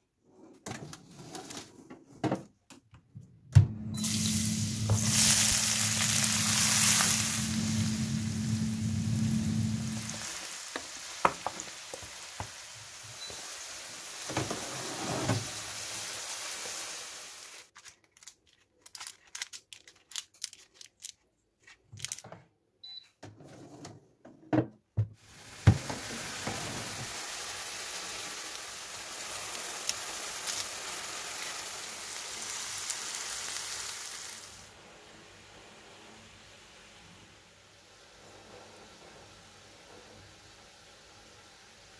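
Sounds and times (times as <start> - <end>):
onions sizzling in oil: 4.0 - 17.7, 25.2 - 41.9.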